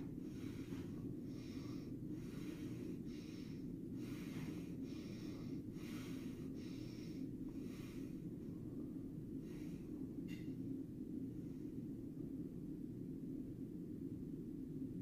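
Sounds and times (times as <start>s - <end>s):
person breathing quickly: 0.0s - 10.2s
steady low hum: 0.0s - 15.0s.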